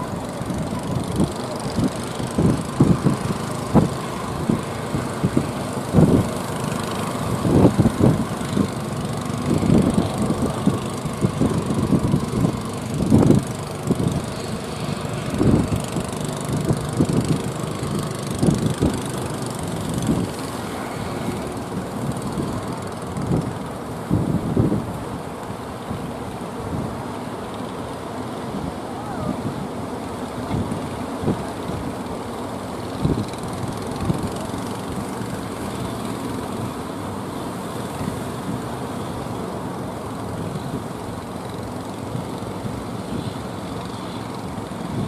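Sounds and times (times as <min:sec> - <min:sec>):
wind buffeting microphone: 0:00.0 - 0:27.0
boat engines running: 0:00.0 - 0:45.0
surf breaking at shore: 0:00.0 - 0:45.0.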